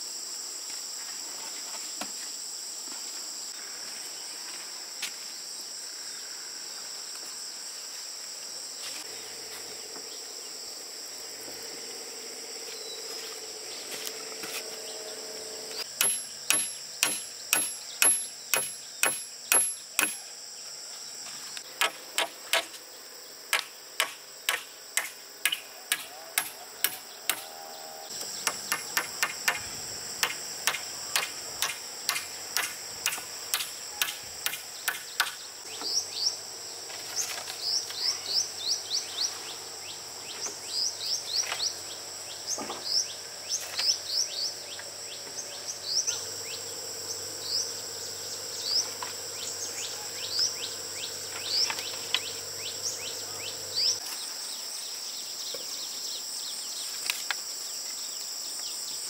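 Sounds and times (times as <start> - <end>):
high-pitched insect drone: 5.4 - 21.7, 22.4 - 56.7
birds chirping: 12.7 - 20.4, 25.4 - 36.4, 37.1 - 54.0
sharp knocks: 15.9 - 20.2, 28.3 - 35.4.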